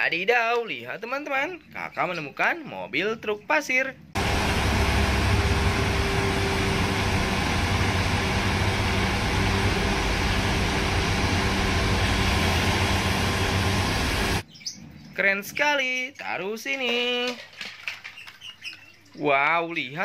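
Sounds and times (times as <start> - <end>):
truck diesel engine humming: 4.2 - 14.4.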